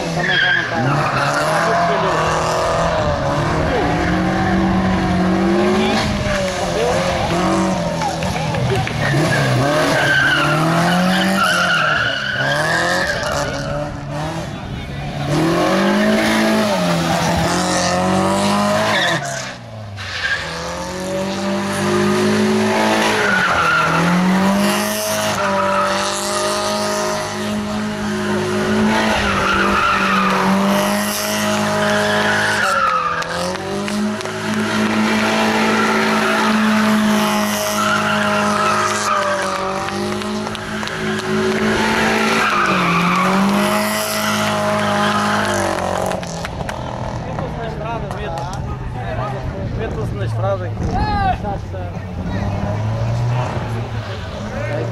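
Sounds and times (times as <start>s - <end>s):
car engine revving hard: 0.0s - 19.6s, 20.4s - 47.4s
tyres squealing: 8.9s - 13.9s, 23.0s - 26.6s, 27.8s - 46.1s.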